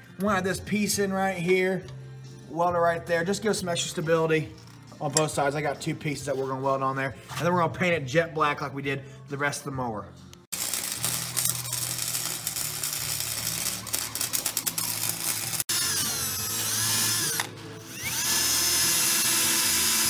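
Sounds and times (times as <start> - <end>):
welding arc crackling: 10.5 - 17.5
cordless drill drilling steel: 14.6 - 20.0.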